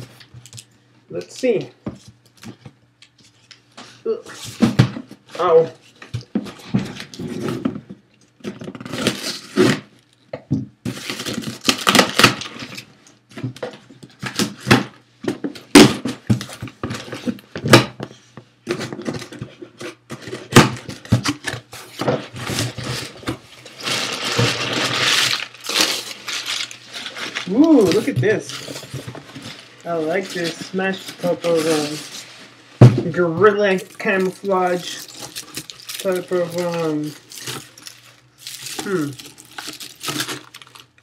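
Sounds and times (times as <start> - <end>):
crumpled paper rustling: 10.9 - 12.9, 18.7 - 41.0
cardboard box being opened: 22.0 - 32.3.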